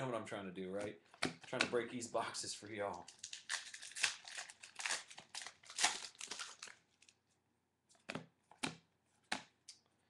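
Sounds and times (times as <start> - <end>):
foil wrapper crinkling: 3.1 - 7.2.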